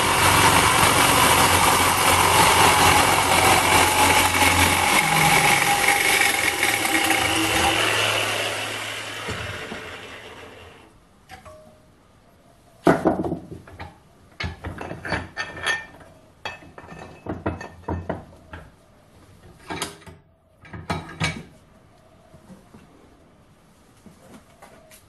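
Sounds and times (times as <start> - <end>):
metal clanks and rattles: 13.1 - 18.7, 19.5 - 21.5.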